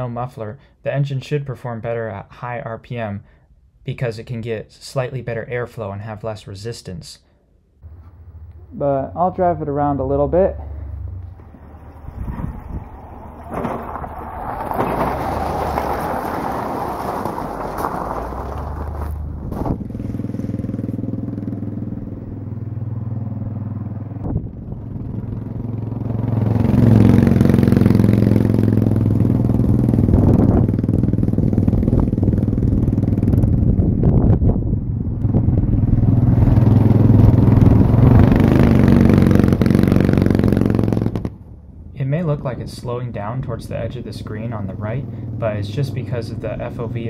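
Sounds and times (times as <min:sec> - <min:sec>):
go-kart engine revving: 0:10.0 - 0:34.1, 0:35.0 - 0:41.4.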